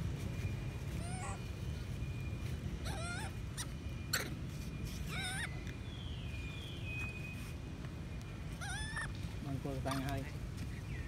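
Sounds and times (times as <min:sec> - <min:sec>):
monkey squealing: 0:01.0 - 0:01.4, 0:02.8 - 0:04.4, 0:05.0 - 0:05.6, 0:08.6 - 0:09.1.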